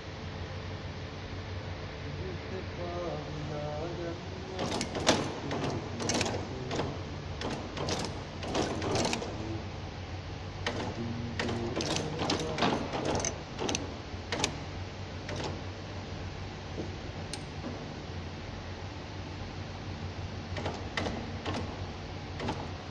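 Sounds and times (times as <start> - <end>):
packing machine hum: 0.0 - 22.9
metallic clicks and clacks: 4.6 - 9.4, 10.6 - 14.6.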